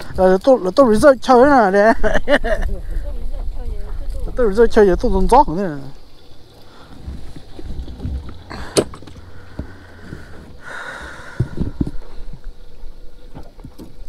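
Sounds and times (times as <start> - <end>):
low steady rumble: 0.0 - 14.0
low thumps: 6.7 - 12.5.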